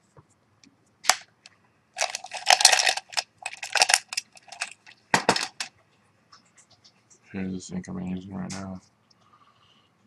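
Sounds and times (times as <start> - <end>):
pens clattering in a cup: 2.0 - 5.7.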